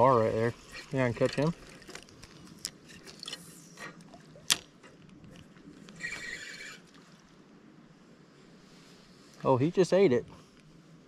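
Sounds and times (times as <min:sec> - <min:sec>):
fishing reel whirring: 0:05.9 - 0:07.0.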